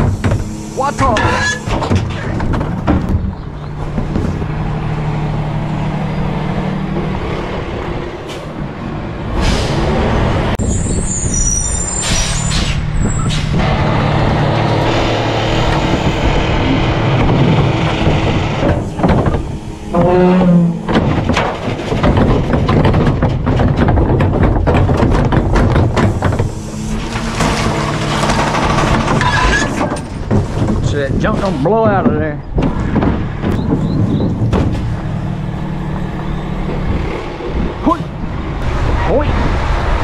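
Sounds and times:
rattling and clanking: 0.0s - 8.7s, 9.3s - 38.8s
garbage truck engine droning: 0.0s - 40.0s
high brake squeals: 0.5s - 1.7s, 10.6s - 13.5s, 29.2s - 29.8s.

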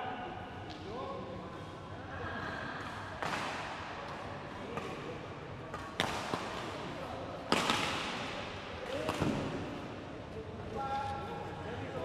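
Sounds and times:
sharp knocks echoing in hall: 3.1s - 4.1s, 7.4s - 10.0s.

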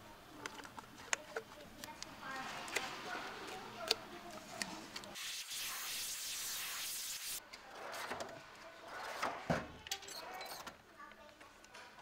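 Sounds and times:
steady hiss: 5.2s - 7.4s.

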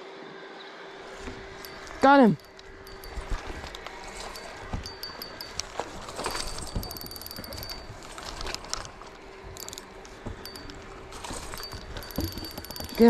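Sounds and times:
fishing reel clicking: 6.8s - 8.8s, 9.6s - 9.8s.

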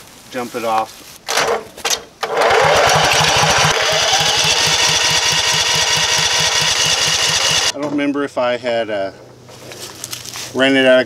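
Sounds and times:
engine electric starter cranking: 2.2s - 7.8s.

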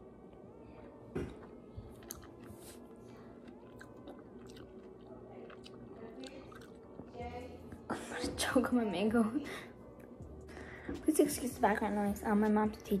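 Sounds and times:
chewing soft fruit: 0.3s - 7.2s.

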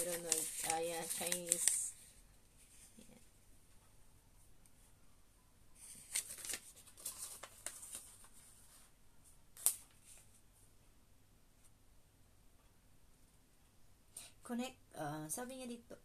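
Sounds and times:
sharp paper crackle: 0.0s - 2.2s, 5.8s - 8.6s, 9.6s - 10.2s
paper leaflet rustling: 0.0s - 3.0s, 5.8s - 8.9s.

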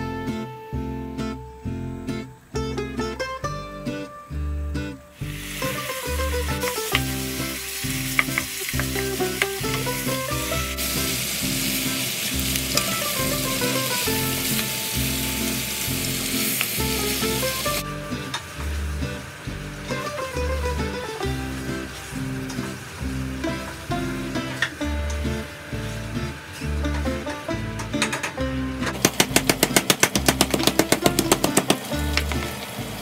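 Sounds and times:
background music: 0.0s - 33.0s
meat sizzling in a pot: 5.1s - 27.6s, 28.9s - 33.0s
sharp pops and clicks: 6.5s - 10.1s, 11.8s - 13.1s, 27.8s - 32.5s.

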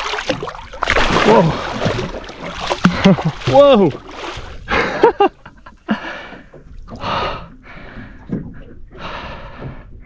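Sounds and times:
man panting heavily: 5.9s - 8.2s, 8.9s - 10.0s.

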